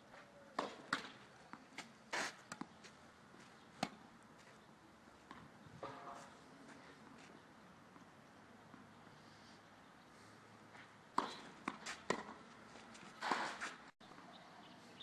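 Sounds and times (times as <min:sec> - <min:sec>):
tennis balls struck and bouncing: 0:00.6 - 0:02.8, 0:03.8 - 0:04.1, 0:10.8 - 0:12.6
soft scuff: 0:01.8 - 0:02.4.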